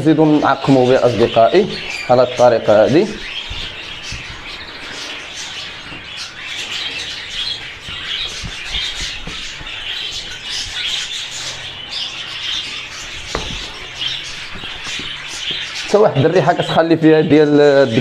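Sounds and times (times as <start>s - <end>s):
budgerigars chattering and squawking: 0.0s - 18.0s
light knocks: 13.2s - 13.8s.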